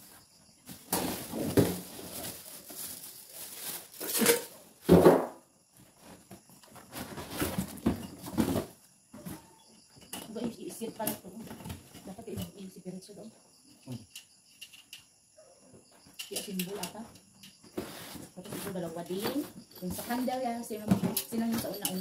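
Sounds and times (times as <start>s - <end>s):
cardboard and plastic rustling: 0.0s - 5.1s, 5.7s - 9.5s, 17.7s - 21.8s.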